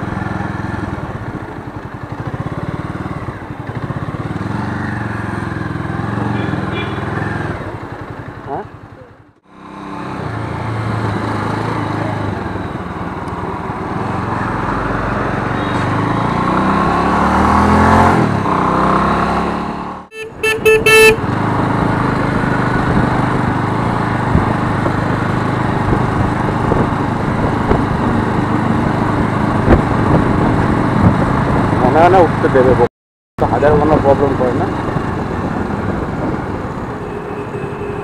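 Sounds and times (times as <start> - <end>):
motorcycle engine pulling away: 0.0 - 8.3, 13.8 - 20.0
vehicle horn short beeps: 6.3 - 7.1, 20.1 - 21.2
wind noise: 20.7 - 31.9.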